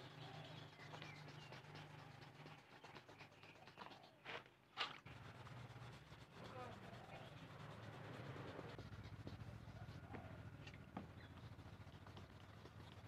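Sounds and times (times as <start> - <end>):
sandpaper rubbing on plastic: 0.0 - 13.0
sandpaper scrapes: 1.2 - 10.3.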